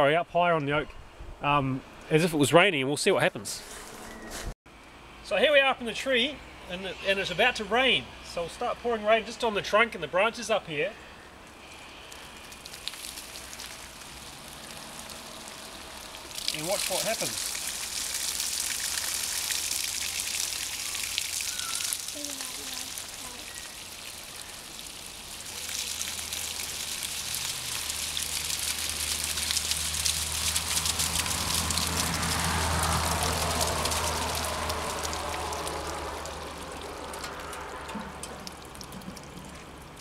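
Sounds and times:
water trickling down tree trunk: 11.4 - 40.0
water splashing: 11.7 - 40.0.

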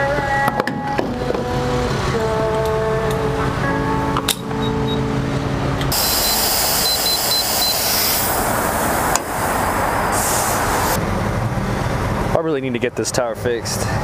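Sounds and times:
short high electronic beeps: 5.9 - 8.2
air machine hissing: 5.9 - 11.0.

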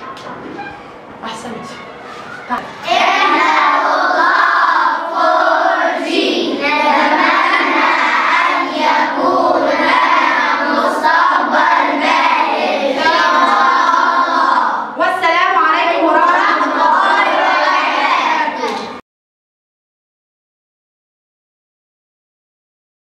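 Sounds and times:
children singing in unison: 2.8 - 14.9, 16.2 - 18.8.

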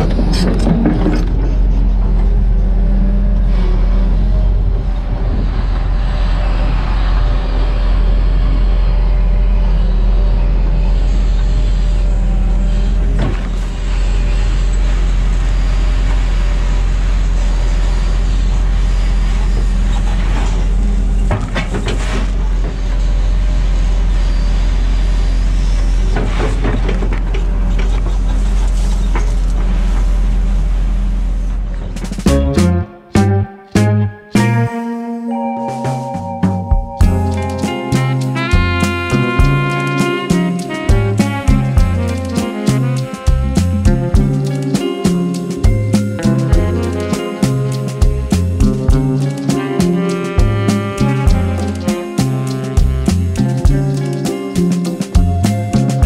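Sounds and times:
excavator diesel engine running: 0.0 - 33.9.

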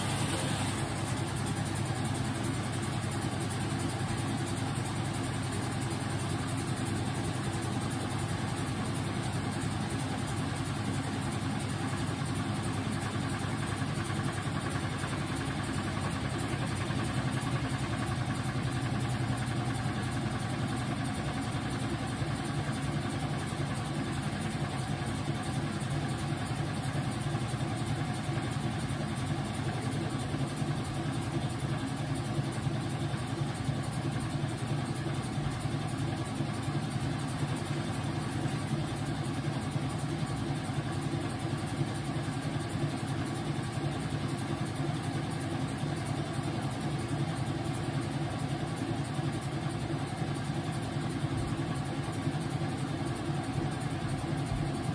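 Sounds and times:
washing machine motor hum: 0.0 - 54.9.

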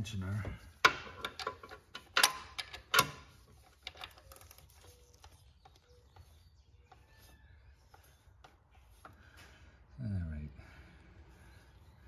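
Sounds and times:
tools clicking and knocking: 0.8 - 4.7.

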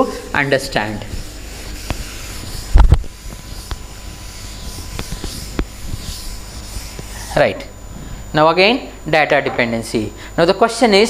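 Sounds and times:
duster rubbing chalkboard: 0.0 - 8.1.

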